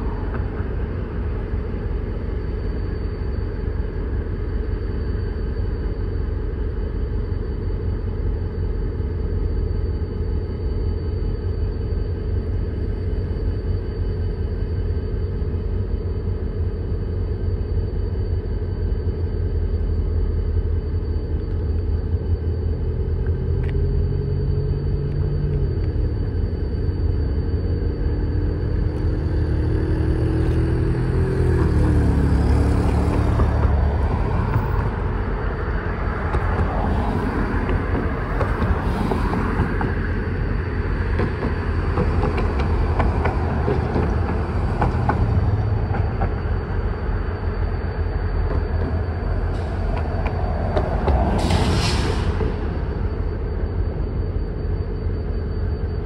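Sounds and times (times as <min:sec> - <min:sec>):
diesel locomotive engine rumbling: 0:00.0 - 0:56.0
rough rushing noise: 0:49.0 - 0:54.3.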